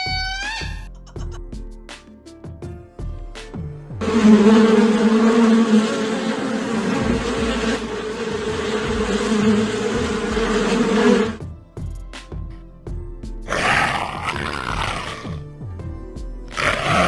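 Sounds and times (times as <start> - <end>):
wasps buzzing: 4.0 - 11.4.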